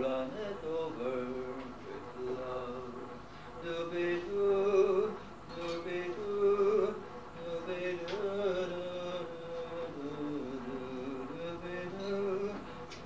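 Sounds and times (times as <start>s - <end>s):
person singing: 0.0s - 13.0s.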